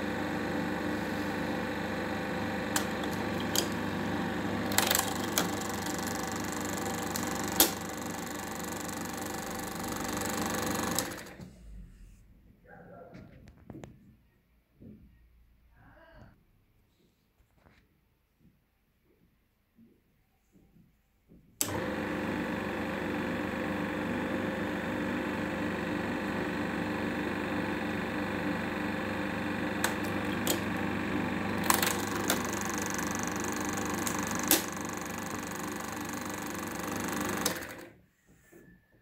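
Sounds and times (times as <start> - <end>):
film projector clattering: 1.8 - 11.4, 21.6 - 37.9.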